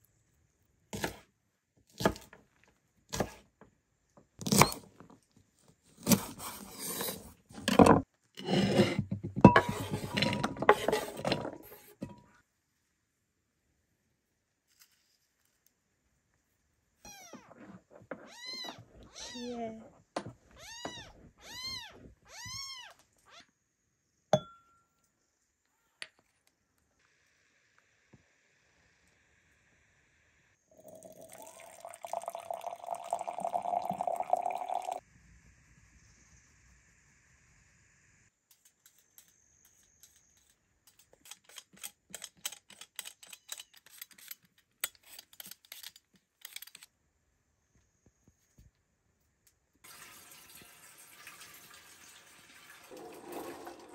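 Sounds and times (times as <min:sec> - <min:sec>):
vegetable peeler scraping potato: 0:06.0 - 0:07.4, 0:38.7 - 0:46.9
kitten meowing: 0:18.3 - 0:19.6.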